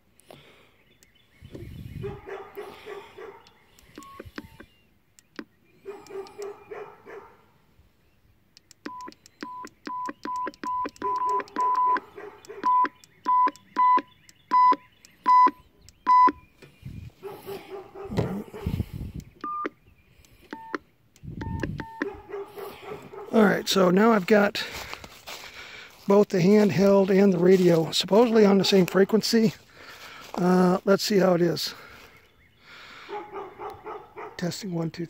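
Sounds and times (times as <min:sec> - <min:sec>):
short radio key beeps: 0:03.8 - 0:05.5, 0:08.6 - 0:12.0, 0:12.6 - 0:16.4, 0:21.4 - 0:22.1.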